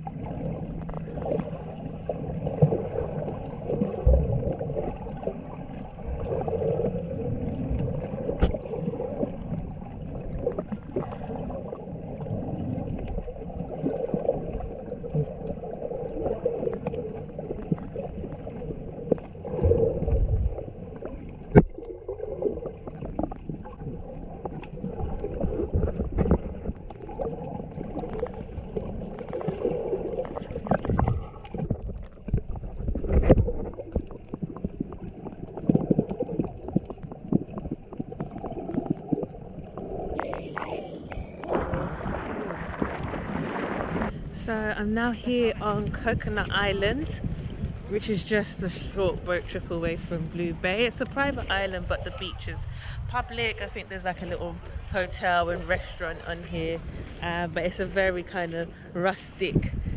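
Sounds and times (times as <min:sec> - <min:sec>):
underwater wash of moving water: 0:00.0 - 0:59.9
underwater clicks and knocks: 0:07.5 - 0:11.2, 0:16.2 - 0:44.2.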